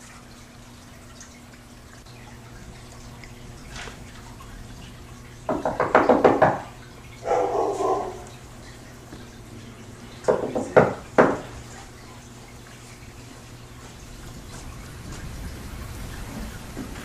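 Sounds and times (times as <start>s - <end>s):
knocking on wooden door: 5.5s - 6.7s, 10.3s - 11.5s.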